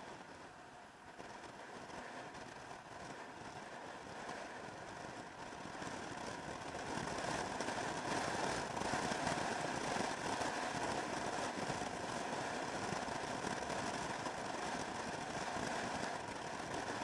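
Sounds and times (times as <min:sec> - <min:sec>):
motor scooter running: 0:00.0 - 0:17.0
wind rushing over camera: 0:00.0 - 0:17.0.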